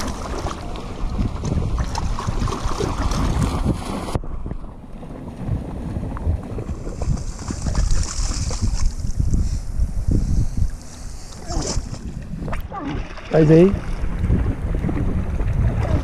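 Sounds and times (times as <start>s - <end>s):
shallow seawater lapping: 0.0s - 9.8s, 10.4s - 16.0s
wind buffeting microphone: 0.0s - 16.0s
dog paws splashing in water: 6.6s - 9.1s.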